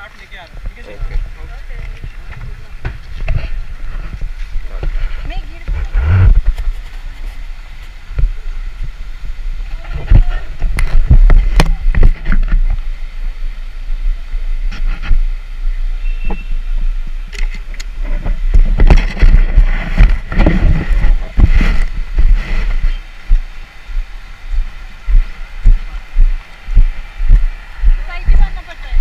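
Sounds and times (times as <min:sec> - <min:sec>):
footsteps on loose stones: 0:00.0 - 0:08.4, 0:18.1 - 0:23.5
wind rumbling on microphone: 0:00.0 - 0:29.0.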